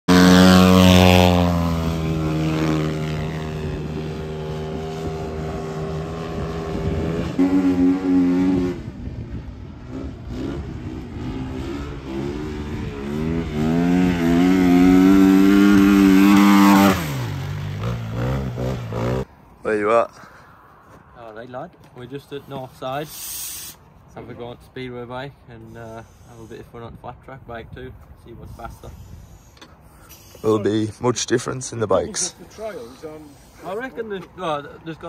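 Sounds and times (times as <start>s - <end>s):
flat-track motorcycle revving: 0.0s - 19.3s
speedway motorcycle engine: 0.1s - 19.3s.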